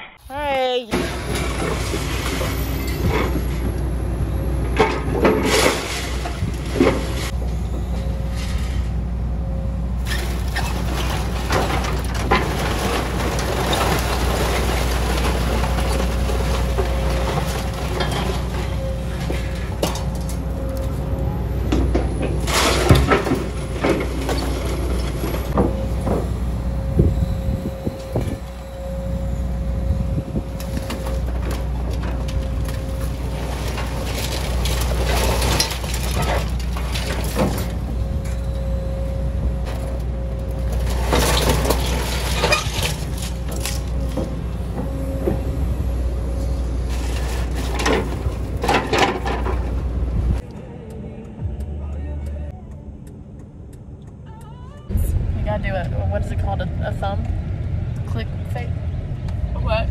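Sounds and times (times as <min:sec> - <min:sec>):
excavator diesel engine whining: 0:00.0 - 0:59.9
scrap metal clanking and scraping: 0:00.9 - 0:09.1, 0:10.0 - 0:38.8, 0:39.6 - 0:45.7, 0:46.3 - 0:50.4.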